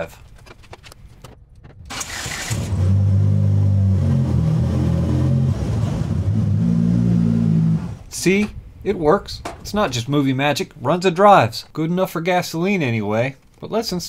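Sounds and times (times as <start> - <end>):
car engine accelerating: 1.8 - 8.1.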